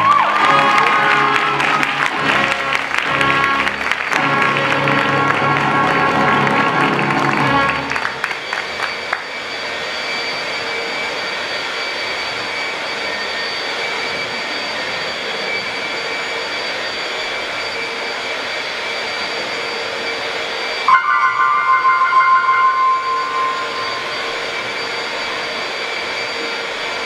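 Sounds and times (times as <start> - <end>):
vacuum cleaner whirring: 7.0 - 20.9, 21.8 - 27.0
uneven vacuum whine: 7.8 - 27.0.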